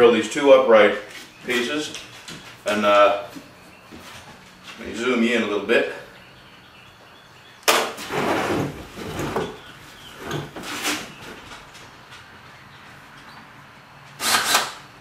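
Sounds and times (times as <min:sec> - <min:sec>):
wood bumping and scraping: 0:07.7 - 0:11.8.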